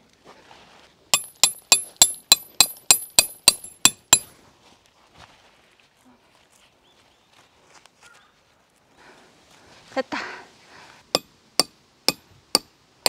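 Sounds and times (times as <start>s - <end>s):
hammer striking metal tent peg: 1.2s - 4.3s, 11.2s - 12.7s.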